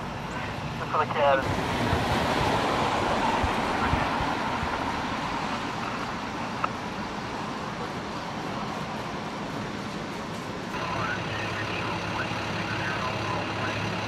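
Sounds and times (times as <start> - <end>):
car driving past: 1.4 - 6.3.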